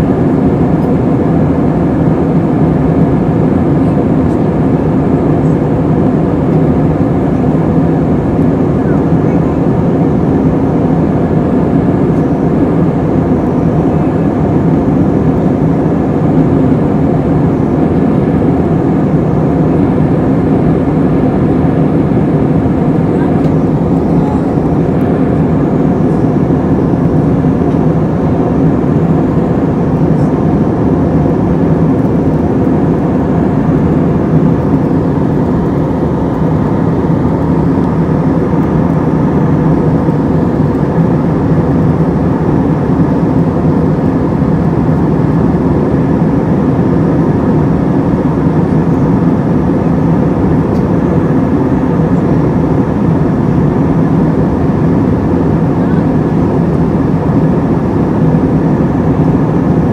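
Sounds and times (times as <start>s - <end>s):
airflow rushing over fuselage: 0.0s - 59.9s
jet engine drone: 0.0s - 59.9s.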